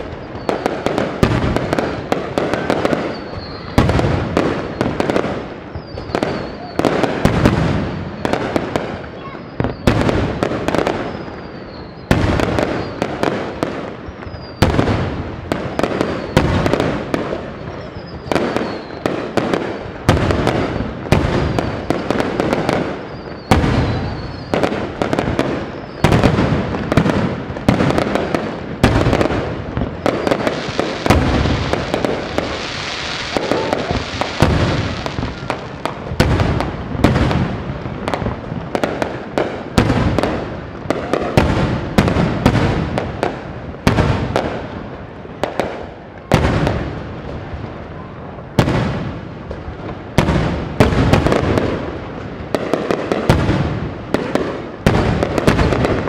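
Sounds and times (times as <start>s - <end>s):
falling firework whistles: 0.0s - 15.0s, 15.7s - 16.8s, 17.6s - 27.1s, 29.1s - 37.2s
firework crackling: 0.0s - 56.0s.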